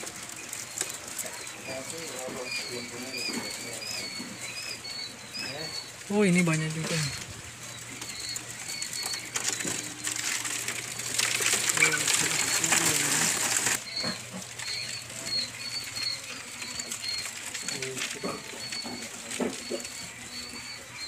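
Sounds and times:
quail chirping: 0.0s - 21.0s
wings flapping and scuffling: 0.0s - 21.0s.

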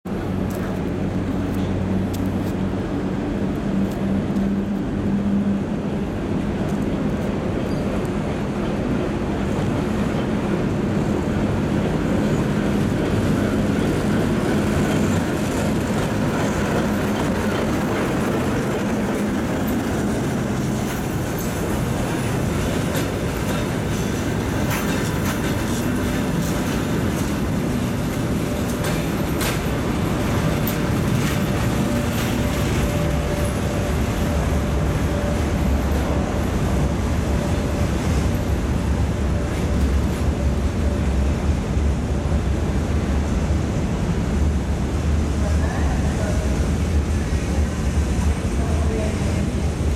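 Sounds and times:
diesel locomotive engine running: 0.1s - 49.9s
train wheels clicking over rail joints: 6.6s - 36.2s.

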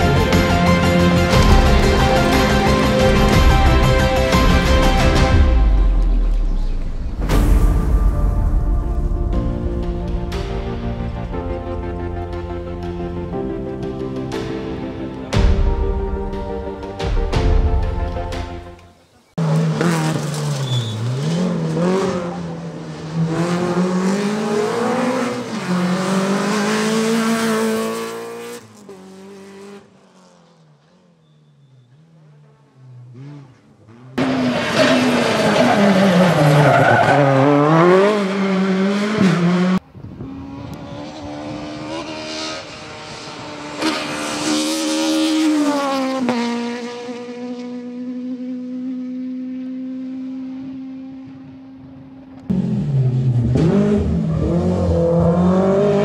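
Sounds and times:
rally car engines revving: 19.2s - 56.0s.

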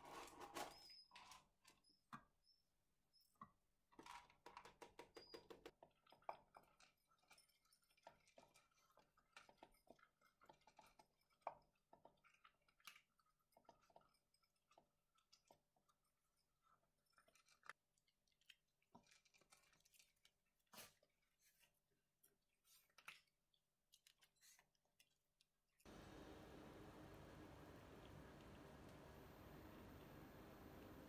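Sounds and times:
animals chewing dry food: 5.8s - 21.0s.

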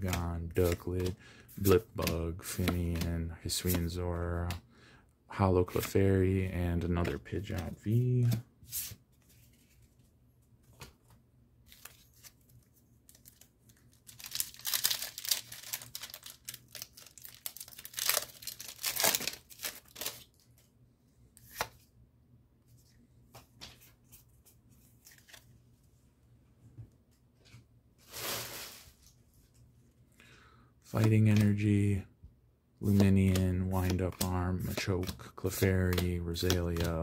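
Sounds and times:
foil wrapper tearing and crinkling: 13.1s - 20.3s.

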